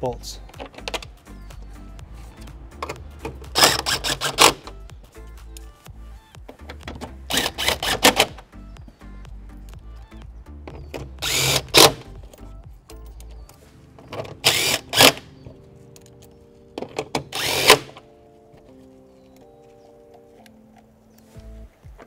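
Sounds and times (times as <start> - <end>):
background music: 0.0 - 22.0
power driver running bolts: 2.8 - 4.8, 6.5 - 8.4, 10.6 - 18.0.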